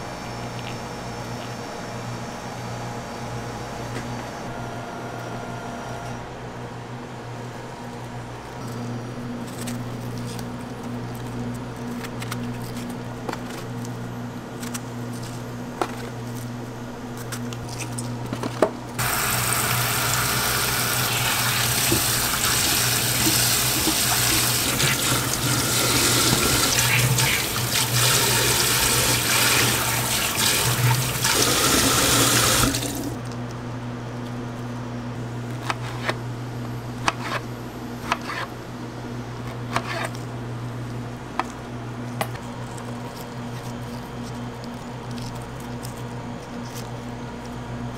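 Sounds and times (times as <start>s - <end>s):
steady low hum: 0.0s - 47.9s
tap water running into bowl: 19.0s - 33.1s.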